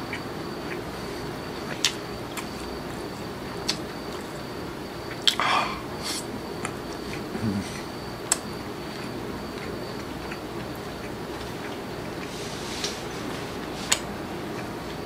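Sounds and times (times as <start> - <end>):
person chewing food: 0.0 - 15.0
lip-smacking clicks: 1.6 - 2.8, 8.2 - 11.8.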